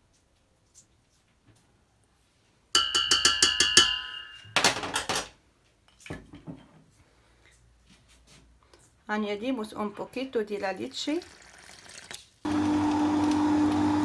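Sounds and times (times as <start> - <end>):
utensils clinking on metal bowl: 2.8 - 5.3.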